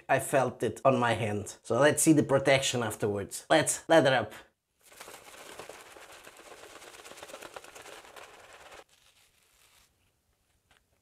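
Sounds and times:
shaving brush swishing lather: 4.8s - 10.1s.

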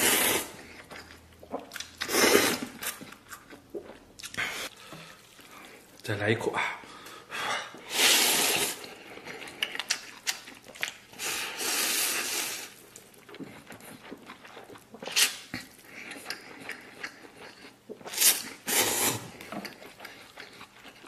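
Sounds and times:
person slurping noodles: 0.0s - 0.9s, 1.5s - 2.8s, 7.8s - 9.0s, 11.2s - 12.8s, 17.5s - 19.4s
chewing and wet smacking: 0.6s - 6.1s, 8.8s - 11.2s, 12.8s - 18.7s, 19.3s - 21.0s.

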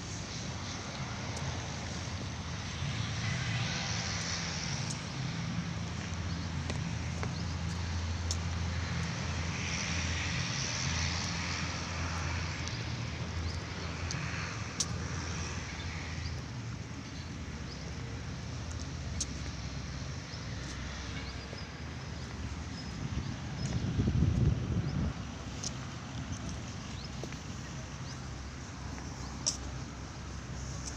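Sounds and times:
light clicks: 29.4s - 29.8s.

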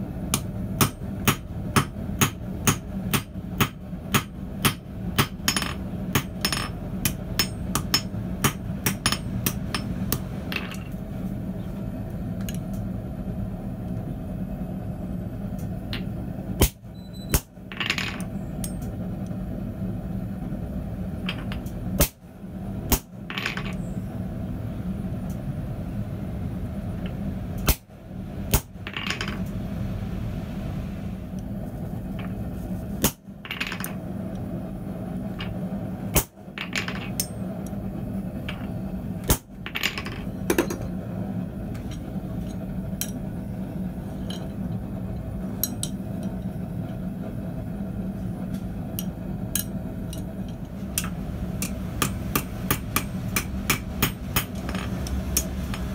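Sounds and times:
low hum: 0.0s - 55.9s
hammer striking metal punch: 0.3s - 10.8s, 51.0s - 54.8s.

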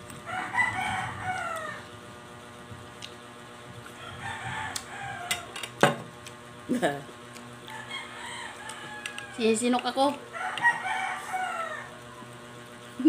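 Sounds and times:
rooster crowing: 0.2s - 1.9s, 3.9s - 5.6s, 7.7s - 9.4s, 10.3s - 12.4s.

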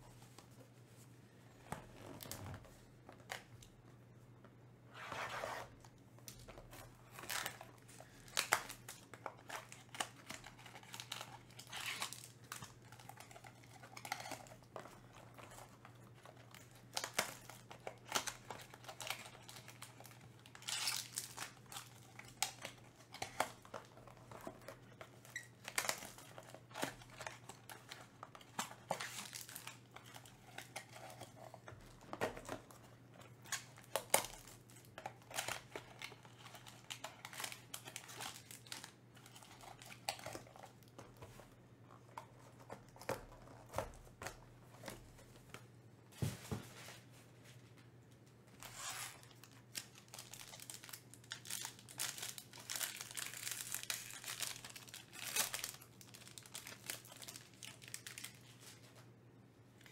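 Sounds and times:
packaging crinkling: 6.3s - 45.3s, 48.6s - 59.0s.

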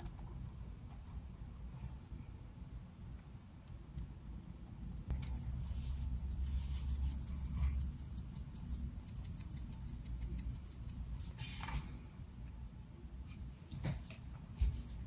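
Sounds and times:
seasoning shaker rattling: 5.5s - 11.1s.

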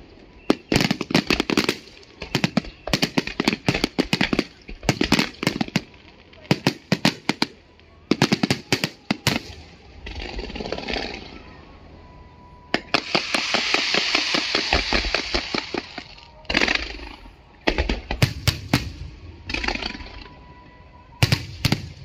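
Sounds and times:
fireworks crackling: 0.0s - 11.5s, 12.7s - 20.4s, 21.2s - 22.0s
fireworks hissing: 12.8s - 17.3s
sharp firework reports: 12.8s - 20.1s.

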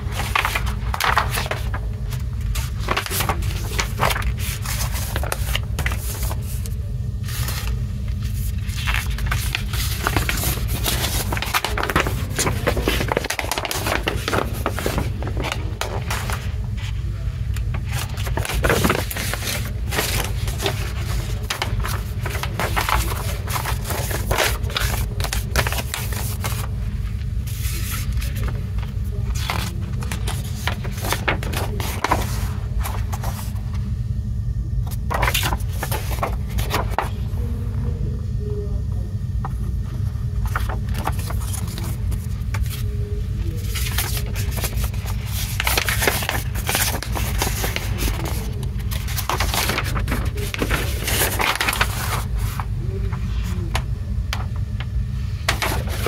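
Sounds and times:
paper rustling and crinkling: 0.0s - 33.8s, 34.8s - 37.5s, 39.9s - 56.0s
steady low hum: 0.0s - 56.0s.

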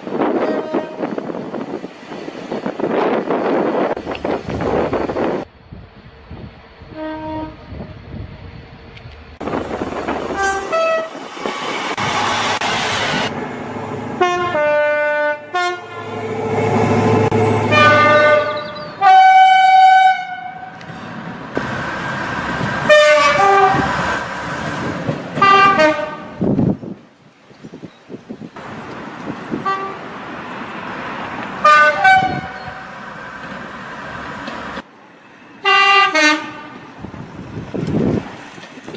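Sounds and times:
passing train rumble: 0.0s - 38.9s
train horn blasts: 0.4s - 1.2s, 6.9s - 7.7s, 10.4s - 11.2s, 14.2s - 16.3s, 17.0s - 20.8s, 22.8s - 23.9s, 25.4s - 26.4s, 29.6s - 30.0s, 31.6s - 32.8s, 35.6s - 36.8s.

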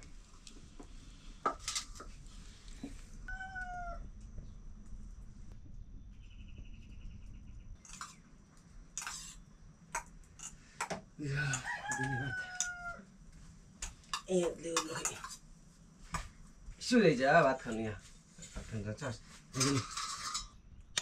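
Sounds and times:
rooster crowing: 3.3s - 4.0s, 11.3s - 13.1s.

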